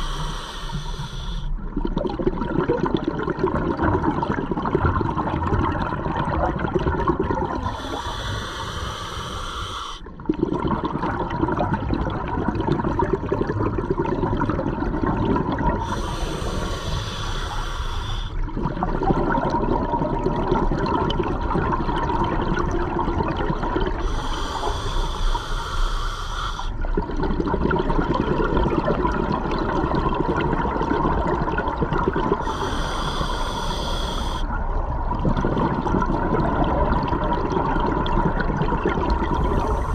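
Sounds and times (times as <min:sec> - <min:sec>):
diver inhaling through regulator: 0:00.0 - 0:01.6, 0:07.6 - 0:10.1, 0:15.8 - 0:18.4, 0:23.9 - 0:26.8, 0:32.4 - 0:34.5, 0:39.3 - 0:39.9
bubbling exhale underwater: 0:01.6 - 0:08.8, 0:10.0 - 0:26.0, 0:26.8 - 0:39.9.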